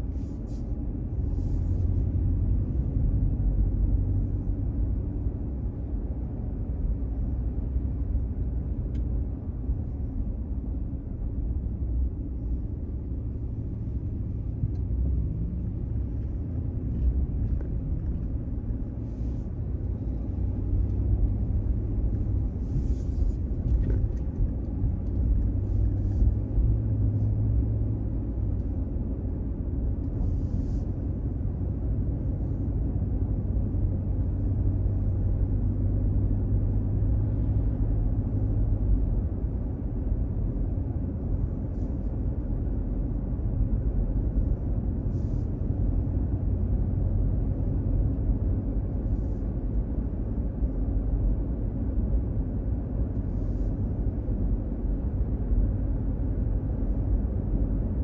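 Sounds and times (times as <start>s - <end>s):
car engine rumble: 0.0s - 58.0s.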